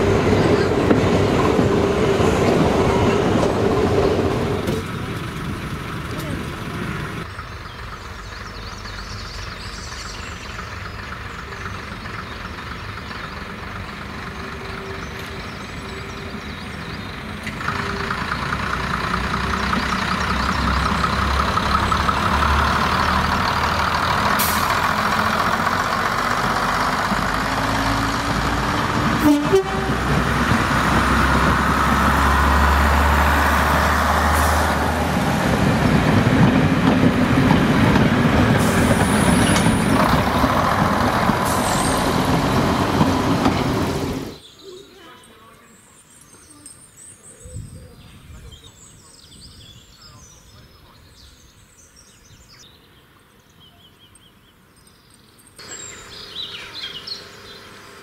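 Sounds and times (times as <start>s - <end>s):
train wheels on track: 0.0s - 44.5s
diesel train engines: 0.0s - 58.0s.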